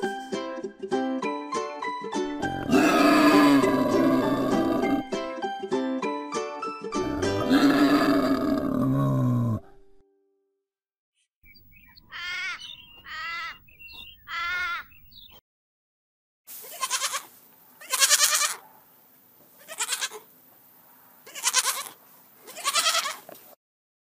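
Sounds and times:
goat kids bleating: 2.5s - 5.1s, 7.1s - 8.6s, 12.1s - 13.6s, 14.3s - 14.9s, 16.6s - 18.6s, 19.6s - 20.3s, 21.2s - 23.3s.

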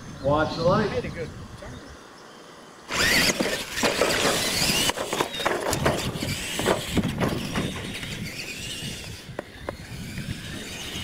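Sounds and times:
electric motors whining: 2.9s - 11.0s
tyres on dirt: 2.9s - 11.0s.

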